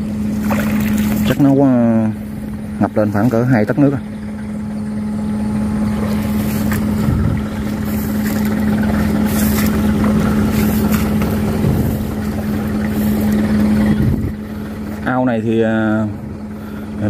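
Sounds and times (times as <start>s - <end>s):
excavator diesel engine idling: 0.0s - 17.0s
footsteps rustling through grass: 6.1s - 13.4s.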